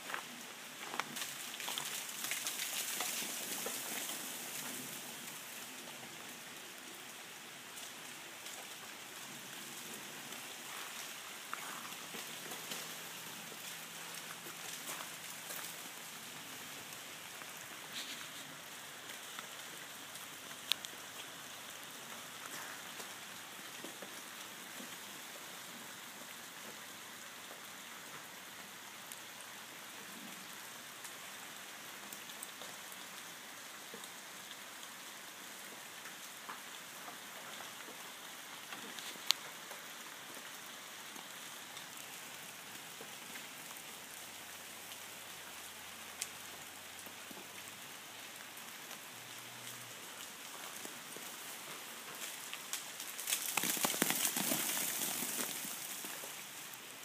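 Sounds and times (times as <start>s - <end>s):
ice drops pattering from trees: 0.8s - 6.0s, 7.7s - 25.0s, 38.6s - 43.8s, 50.1s - 57.0s.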